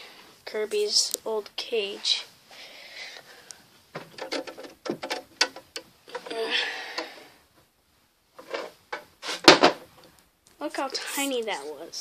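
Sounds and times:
plastic clicks and knocks: 3.9s - 6.3s
rustling scrape: 8.4s - 9.5s, 10.9s - 11.8s.

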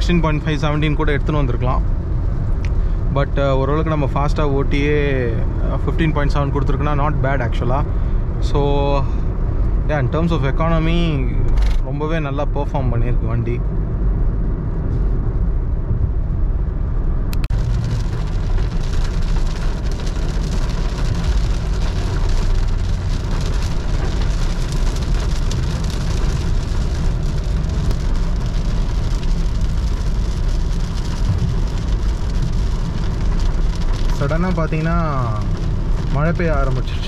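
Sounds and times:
car engine and road rumble: 0.0s - 37.0s
heavy rain on car roof: 17.4s - 37.0s.

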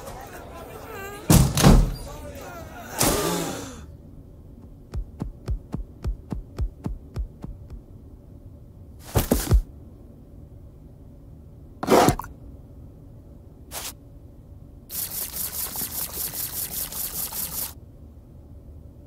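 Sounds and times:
loud thumps: 4.9s - 7.8s
quick footsteps on wooden floor: 4.9s - 7.8s.

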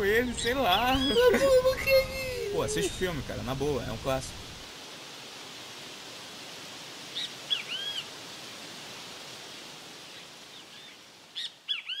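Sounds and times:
bird calling: 0.0s - 3.2s, 7.1s - 8.1s, 10.1s - 12.0s
steady outdoor hiss: 0.0s - 12.0s.

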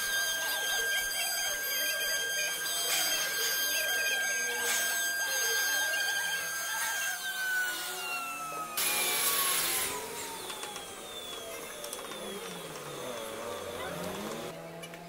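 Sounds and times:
bit cutting wood: 0.0s - 14.5s
router spindle whining: 0.0s - 15.0s.

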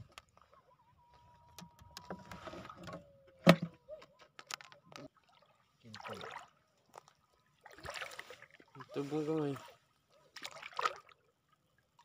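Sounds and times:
seawater splashing while wading: 5.2s - 12.0s.

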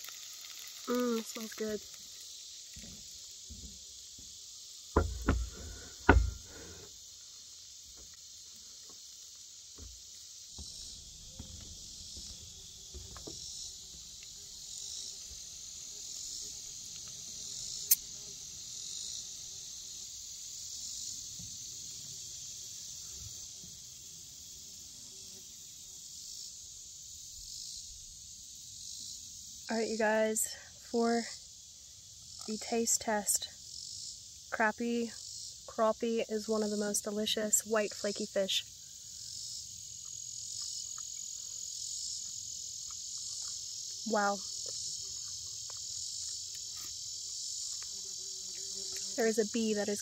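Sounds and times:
high-pitched insect chorus: 0.0s - 50.0s
loud knocks: 5.0s - 6.5s.

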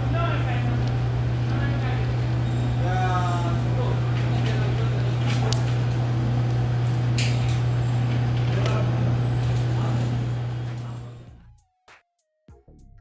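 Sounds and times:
low machine hum: 0.0s - 11.5s.

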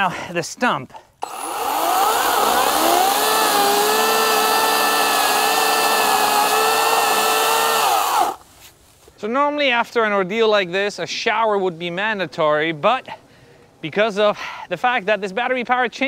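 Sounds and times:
battery chainsaw cutting: 1.2s - 8.4s.

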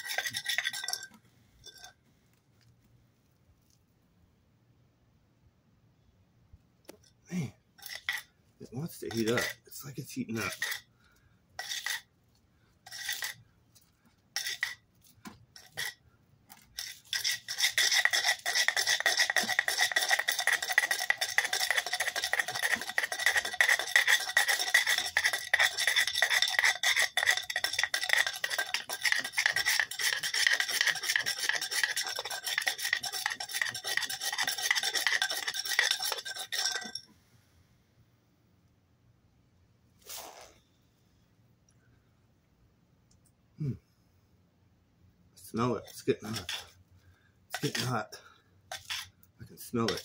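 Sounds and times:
wooden board rolling tinder on concrete: 0.0s - 2.0s, 14.4s - 37.0s.

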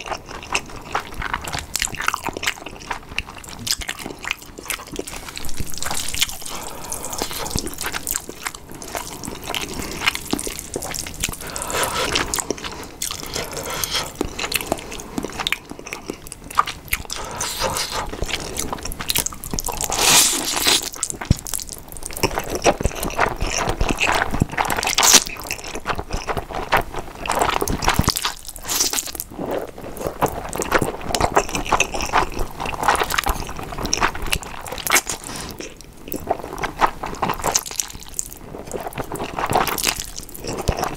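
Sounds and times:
slurping and chewing noodles: 0.0s - 40.9s
wet mouth noises: 4.6s - 21.3s.

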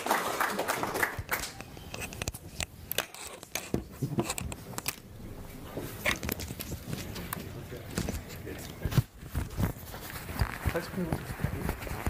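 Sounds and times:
audience applause: 0.0s - 1.6s.

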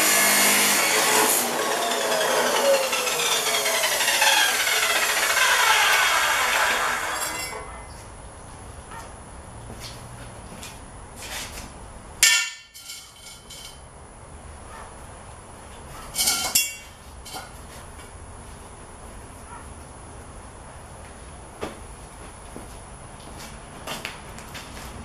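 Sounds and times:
metal clatter: 1.6s - 7.7s, 12.2s - 13.8s, 16.2s - 17.6s
steel tubing clanging on concrete: 5.0s - 7.7s, 12.2s - 13.9s, 16.1s - 17.6s.

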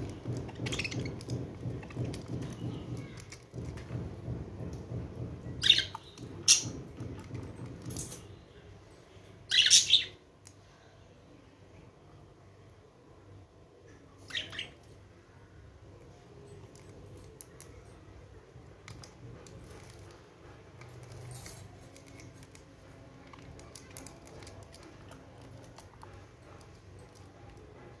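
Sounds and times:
bird chirp: 5.5s - 6.8s, 9.5s - 10.2s, 14.2s - 14.8s.

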